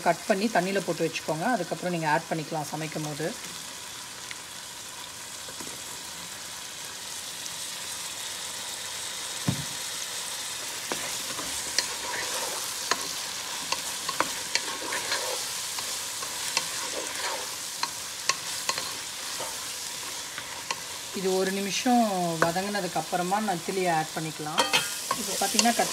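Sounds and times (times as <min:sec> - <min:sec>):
vegetables sizzling in hot oil: 0:00.0 - 0:25.9
dull thump: 0:09.4 - 0:09.7
wooden spatula scraping pan: 0:10.9 - 0:17.6.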